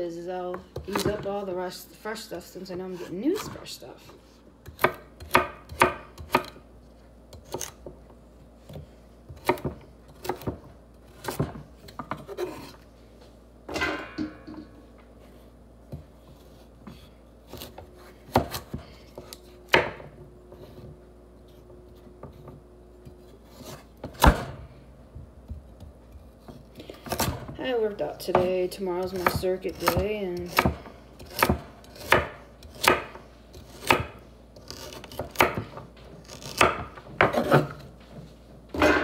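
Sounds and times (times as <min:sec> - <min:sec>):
knife chopping on wooden board: 0:04.6 - 0:06.6, 0:08.6 - 0:10.6, 0:16.9 - 0:20.9, 0:29.2 - 0:37.8.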